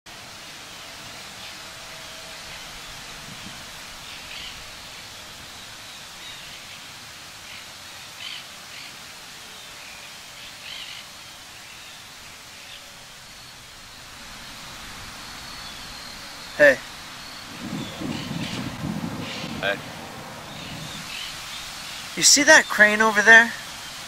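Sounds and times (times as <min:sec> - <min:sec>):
outdoor hiss: 0:00.1 - 0:24.0
high bird chirps: 0:12.7 - 0:22.8.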